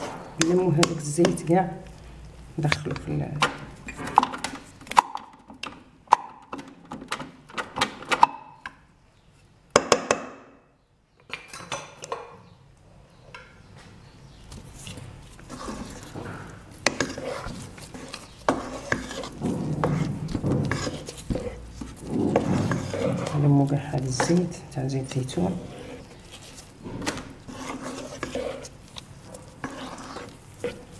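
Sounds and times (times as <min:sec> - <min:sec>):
dough scraping and squelching: 0:00.0 - 0:05.1, 0:14.4 - 0:30.9.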